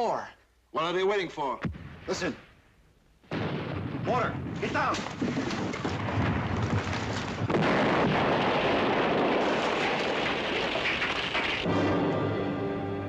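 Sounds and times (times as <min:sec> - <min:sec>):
mortar explosions: 0:01.6 - 0:02.6, 0:03.2 - 0:11.8
debris falling: 0:03.3 - 0:11.7
music: 0:11.7 - 0:13.0.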